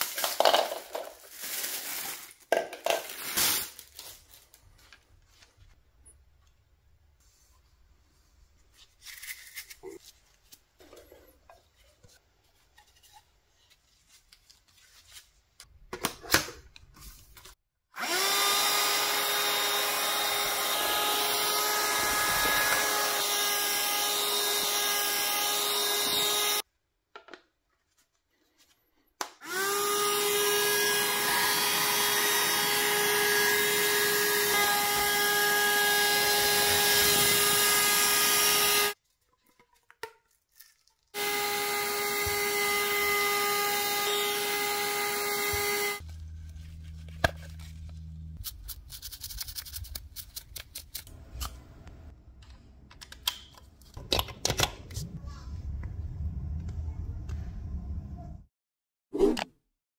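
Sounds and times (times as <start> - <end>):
handheld vacuum cleaner whine: 18.0 - 26.6, 29.4 - 39.0, 41.2 - 46.1.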